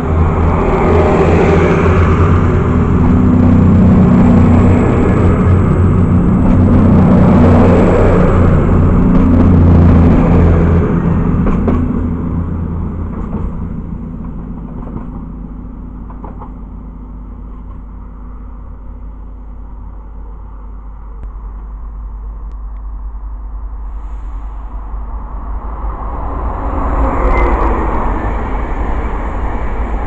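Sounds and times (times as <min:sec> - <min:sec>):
diesel train engines droning: 0:00.0 - 0:30.0.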